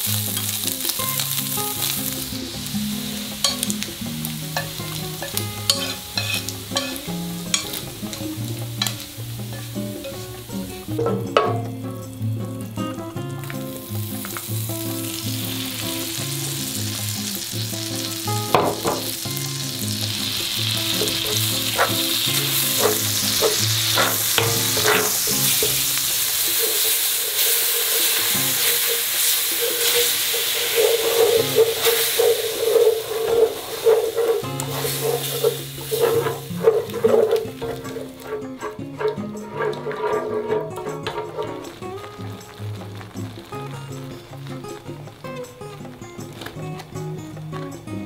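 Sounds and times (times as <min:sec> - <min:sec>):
butter sizzling in a frying pan: 0:00.0 - 0:48.0
spatula scraping and tapping pan: 0:02.9 - 0:11.7, 0:17.9 - 0:44.6.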